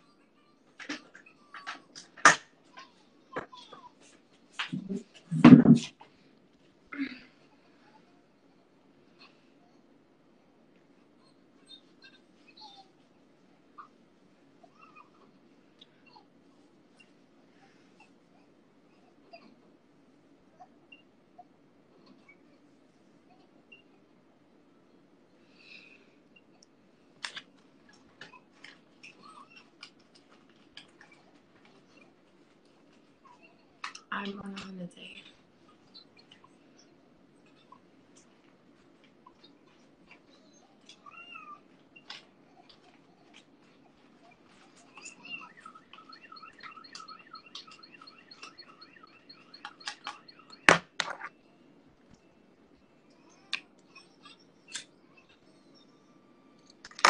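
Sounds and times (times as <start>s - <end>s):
small clicks and ticks: 35.7s - 51.4s
quick regular chirping: 44.3s - 51.6s
phone being handled: 49.9s - 51.3s.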